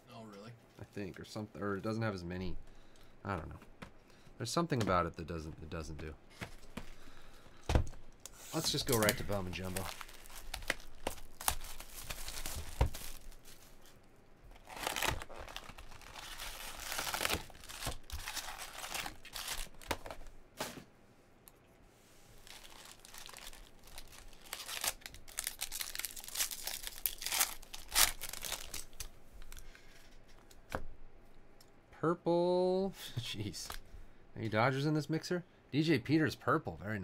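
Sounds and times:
foil packs ripping open: 8.6s - 13.8s, 14.5s - 20.3s, 22.4s - 29.1s
plastic shrink-wrap tearing: 8.6s - 13.8s, 14.5s - 20.1s, 22.4s - 29.1s.

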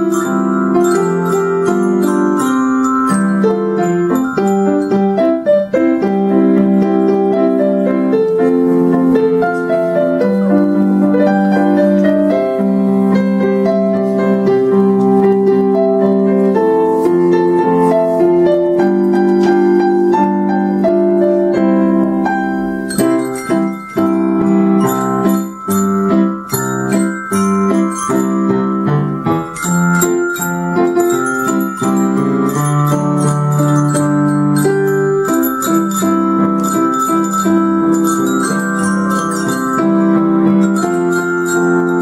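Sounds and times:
glockenspiels struck with beaters: 0.0s - 6.0s, 22.2s - 42.0s
keyboard playing melody and chords: 0.0s - 42.0s.

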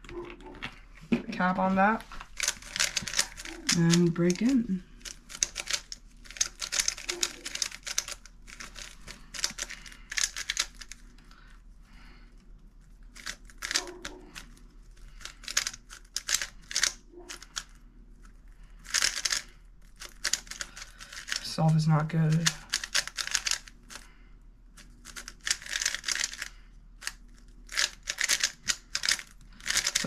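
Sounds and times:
plastic puzzle cube clicking: 2.4s - 11.0s, 13.1s - 14.5s, 15.2s - 17.8s, 18.8s - 21.5s, 22.3s - 24.0s, 25.0s - 30.0s.

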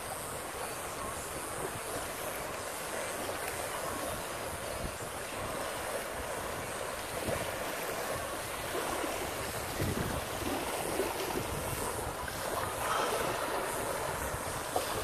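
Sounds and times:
small waves lapping on shore: 0.0s - 15.0s
wind buffeting microphone: 0.0s - 15.0s.

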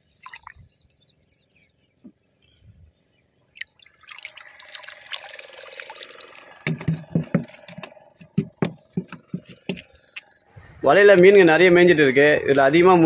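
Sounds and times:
shallow water splashing: 0.0s - 1.5s, 3.5s - 7.8s
sharp knocks and thumps: 6.6s - 10.2s.

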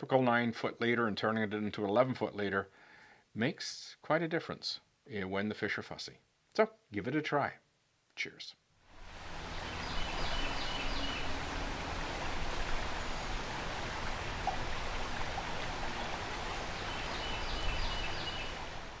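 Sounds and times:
river water rushing over rocks: 9.0s - 19.0s.

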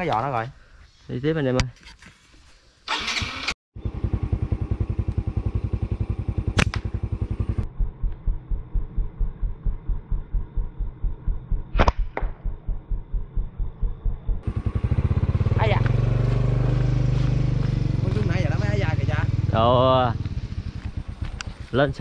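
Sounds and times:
small motorcycle engine idling: 2.9s - 8.0s, 14.3s - 21.9s
slingshot snaps: 6.6s - 6.9s, 11.7s - 12.4s.

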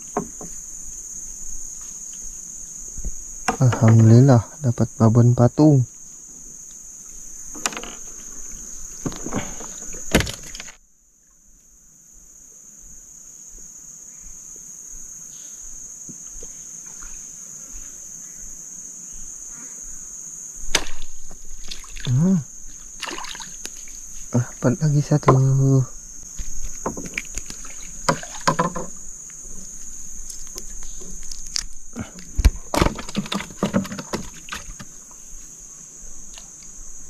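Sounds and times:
insects chirring: 0.0s - 37.0s
sharp knocks: 28.1s - 29.0s.

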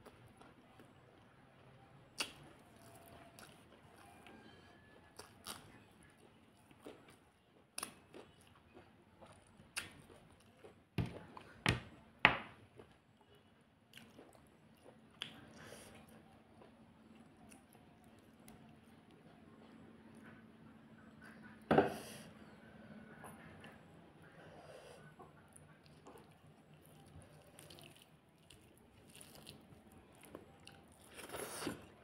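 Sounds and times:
chewing: 2.2s - 11.6s, 12.8s - 21.6s, 25.0s - 32.0s.

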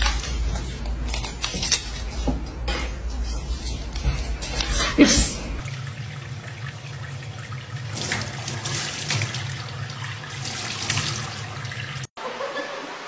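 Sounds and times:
tap water running into sink: 5.6s - 12.1s.

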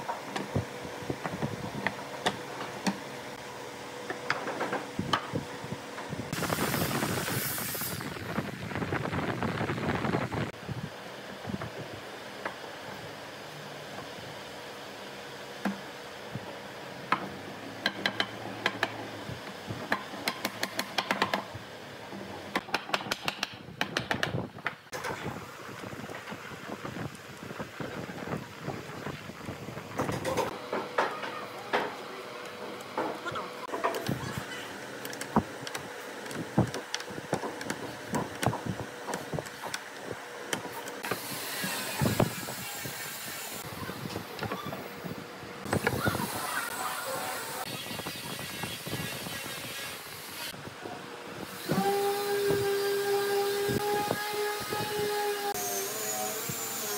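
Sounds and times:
wooden slats clicking and knocking: 22.5s - 24.8s.

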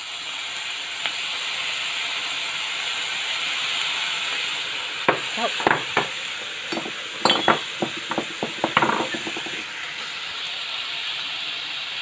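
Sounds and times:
vegetables sizzling in a frying pan: 0.0s - 12.0s
light clicks and knocks: 6.7s - 9.6s.

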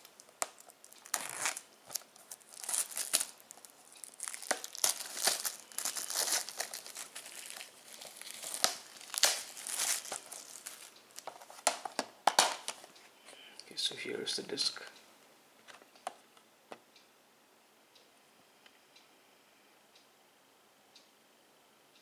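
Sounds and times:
plastic shrink-wrap crinkling: 0.0s - 12.9s.

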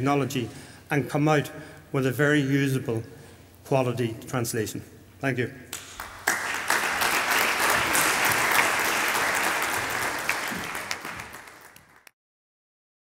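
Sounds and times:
audience applauding: 5.8s - 12.1s.

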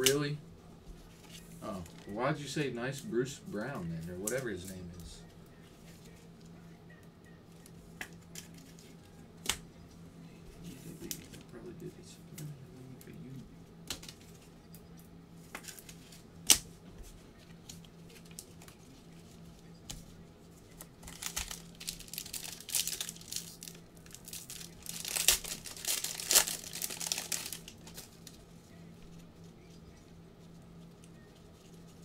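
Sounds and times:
foil wrapper tearing and crinkling: 20.8s - 28.4s.

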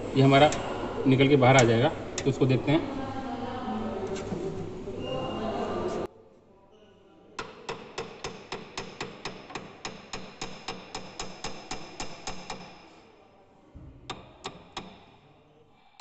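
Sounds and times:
hammer tapping cast iron: 7.4s - 12.8s, 14.1s - 15.1s.

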